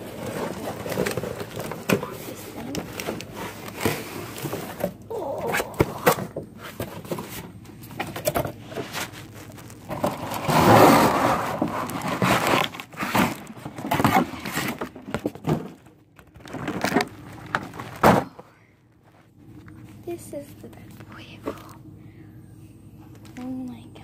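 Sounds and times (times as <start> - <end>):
cardboard box scraping and knocking: 0.0 - 5.0, 5.8 - 15.8
cardboard rustling: 0.0 - 18.4.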